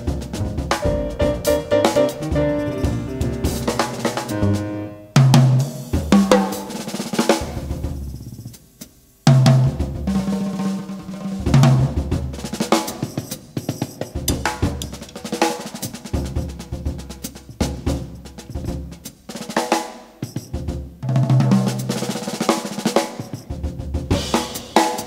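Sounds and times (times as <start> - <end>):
jazz drum kit solo: 0.0 - 25.0.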